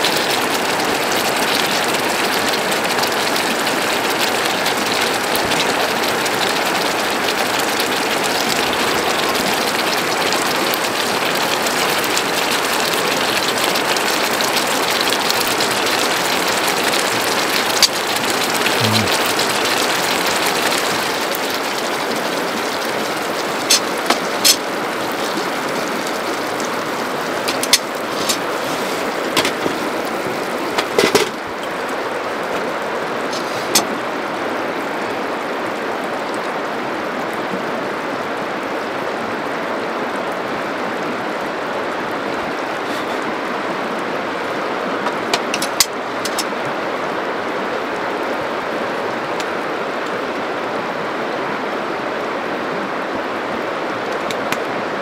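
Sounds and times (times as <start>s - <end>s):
sauce bubbling and sizzling: 0.0s - 34.1s.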